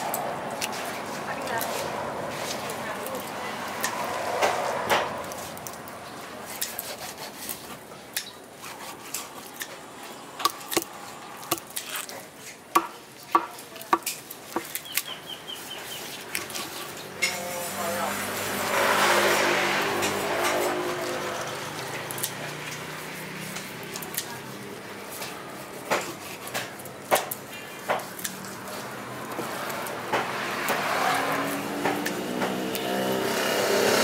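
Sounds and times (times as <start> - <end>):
knife chopping on wooden block: 25.8 - 28.1.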